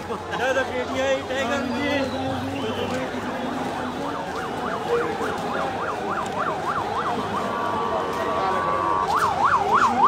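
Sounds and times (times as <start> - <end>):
street noise: 0.0 - 10.0
electronic siren: 2.4 - 10.0.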